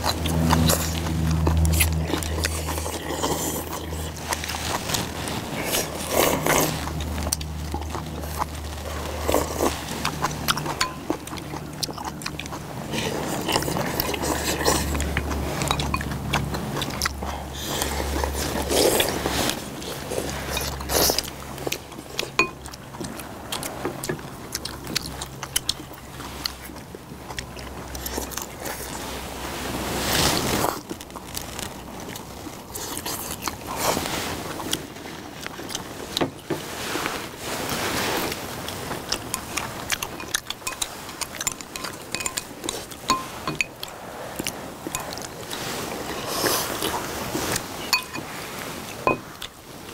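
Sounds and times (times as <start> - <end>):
slurping soup: 0.0 - 26.8, 27.4 - 49.9
chewing: 0.0 - 49.9
low steady rumble: 0.0 - 49.9
utensils clicking on ceramic bowls: 10.3 - 11.4, 15.6 - 16.2, 39.2 - 43.9, 47.9 - 48.3.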